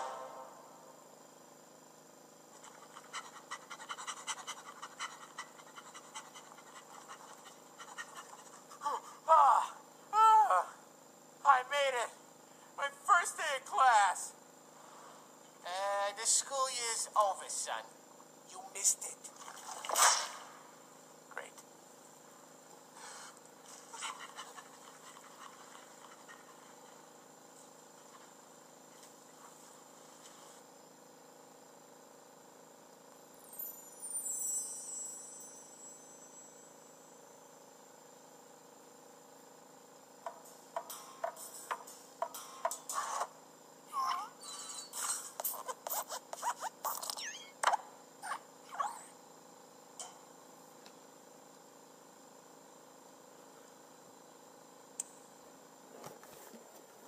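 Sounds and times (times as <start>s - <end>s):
faint steady hiss and hum: 0.0s - 49.2s
breathy panting puffs: 2.6s - 9.2s, 23.0s - 27.0s.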